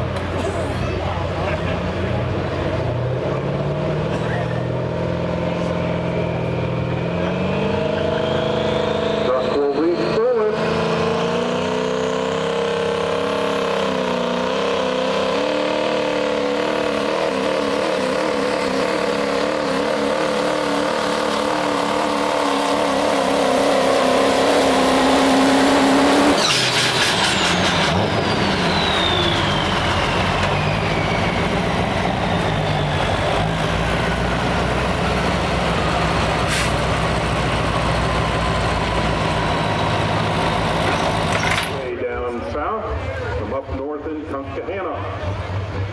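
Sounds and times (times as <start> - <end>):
diesel engine at full throttle: 0.0 - 45.9
turbocharger whistling whine: 5.8 - 10.6, 12.4 - 34.4.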